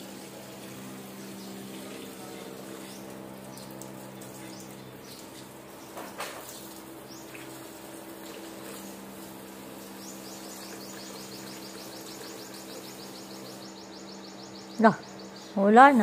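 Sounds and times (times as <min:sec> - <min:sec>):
garden hose spraying water: 0:00.0 - 0:14.2, 0:15.6 - 0:16.0
fast high-pitched chirping: 0:09.8 - 0:16.0.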